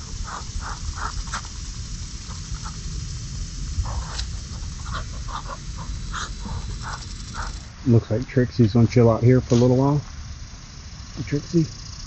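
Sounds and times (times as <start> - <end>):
ducks pecking seed on concrete: 0.0 - 7.7
low rumble: 0.0 - 12.0.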